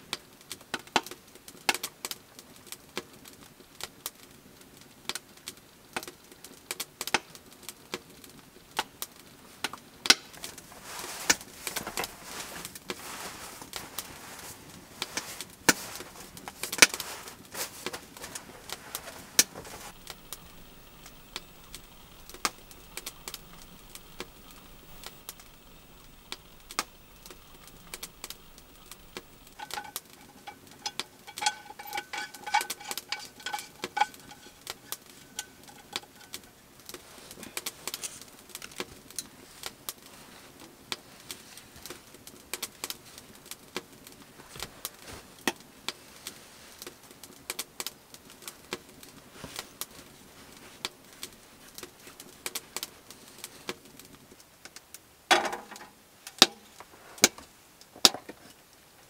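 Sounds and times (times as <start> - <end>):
rustling of bedding and clothing: 10.2 - 42.1, 44.2 - 47.3, 48.5 - 53.9
clicks and knocks: 19.0 - 36.4
frying pan metallic clinks: 27.5 - 36.4.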